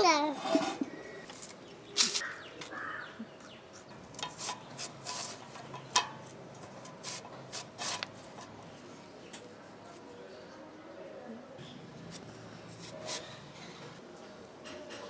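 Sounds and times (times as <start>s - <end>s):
plantain scraping on slicer blade: 3.7s - 5.9s, 6.8s - 8.6s, 12.0s - 13.6s.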